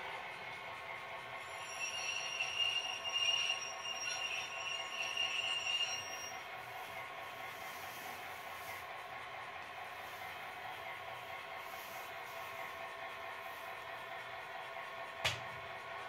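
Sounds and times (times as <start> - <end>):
model locomotive diesel sound: 0.0 - 16.0
high steady squeal: 1.4 - 6.8.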